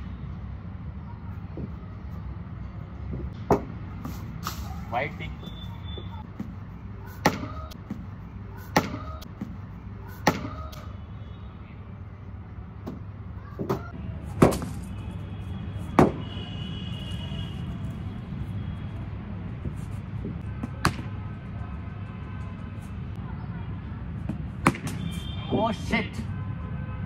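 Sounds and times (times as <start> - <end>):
cricket bat hitting ball: 7.2 - 8.0, 8.7 - 9.6, 13.6 - 14.8, 16.0 - 16.2, 24.3 - 25.1.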